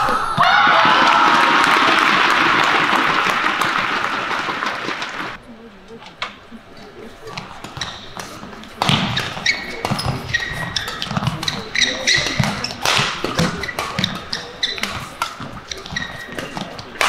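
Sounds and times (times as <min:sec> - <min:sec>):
shoes squeaking on court: 0:06.8 - 0:17.0
rackets hitting shuttlecock: 0:07.4 - 0:17.0.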